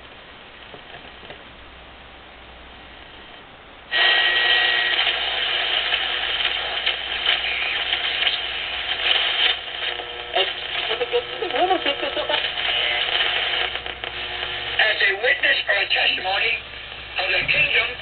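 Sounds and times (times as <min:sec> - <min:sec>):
loud rush of static: 0:00.0 - 0:18.0
radio crackling and clicking: 0:00.6 - 0:01.5, 0:03.0 - 0:18.0
radio speaker hiss: 0:02.8 - 0:18.0
steady radio whistle: 0:03.9 - 0:10.9.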